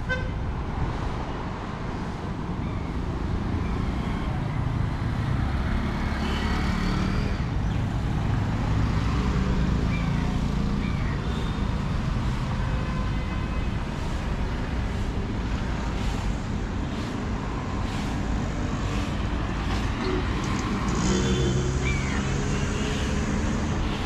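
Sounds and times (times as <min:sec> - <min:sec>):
scooters and cars passing on wet road: 0:04.8 - 0:10.8.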